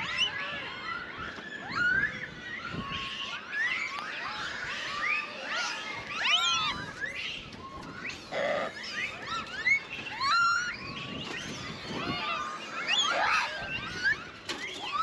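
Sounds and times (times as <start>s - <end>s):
monkeys cooing and squealing: 3.3s - 7.2s, 8.1s - 15.0s.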